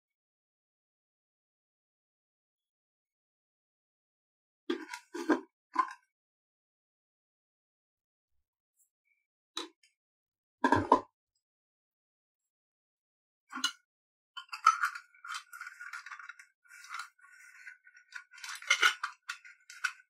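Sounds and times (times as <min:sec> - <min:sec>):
metal clinking and scraping: 0:14.4 - 0:20.0.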